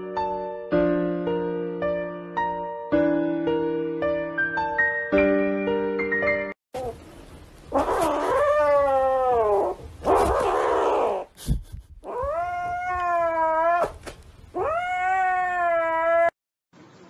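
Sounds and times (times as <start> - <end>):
cat yowling: 7.7 - 11.3, 12.0 - 16.4.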